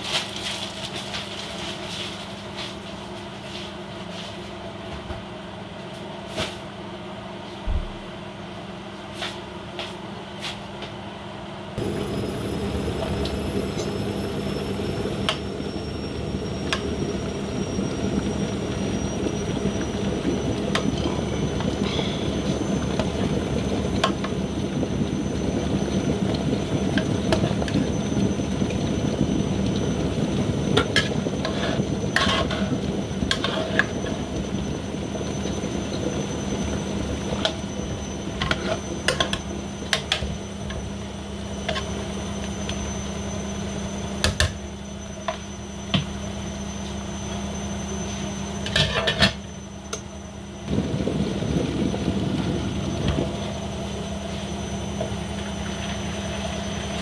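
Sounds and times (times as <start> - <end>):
faint high whine: 11.8 - 57.0.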